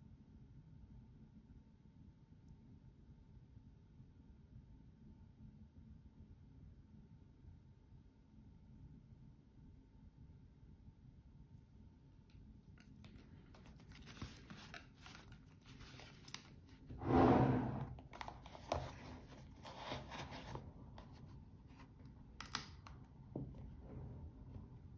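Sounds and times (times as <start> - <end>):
paper and box rustling: 12.8 - 17.0, 17.8 - 22.6.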